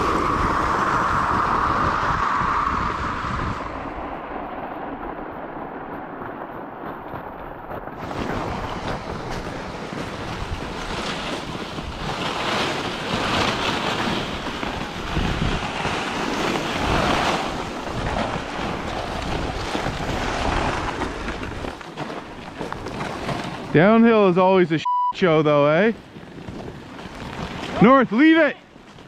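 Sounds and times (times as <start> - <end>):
wind on microphone: 0.0 - 24.0
freezing rain: 0.0 - 29.0
toboggans sliding over icy snow: 0.0 - 29.0.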